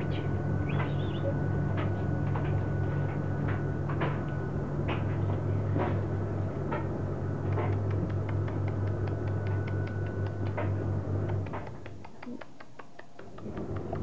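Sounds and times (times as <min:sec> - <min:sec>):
low electrical hum: 0:00.0 - 0:14.0
small clicks: 0:07.5 - 0:14.0.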